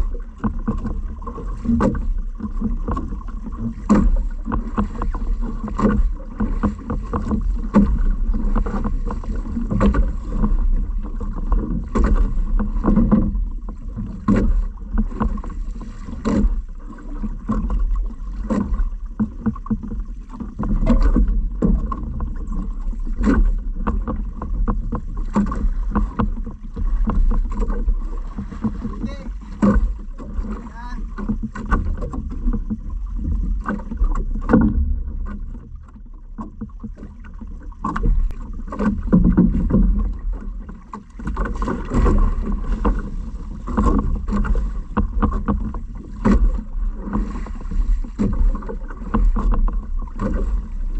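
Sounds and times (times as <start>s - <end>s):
water splashing against hull: 0.0s - 50.9s
steady low rumble: 16.6s - 40.9s.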